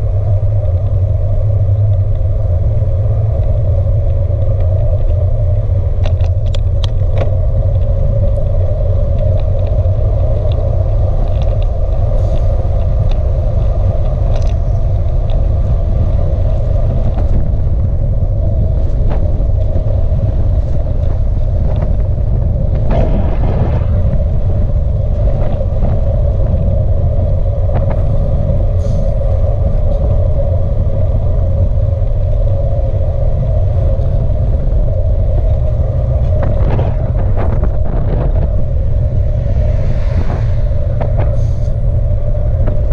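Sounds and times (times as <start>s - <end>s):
wind rush on microphone: 0.0s - 42.9s
small clicks and knocks: 6.0s - 7.9s, 14.0s - 14.6s.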